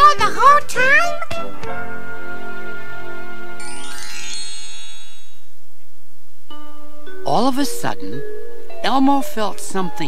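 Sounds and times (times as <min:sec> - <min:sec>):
twinkling chime flourish: 0:03.6 - 0:05.5.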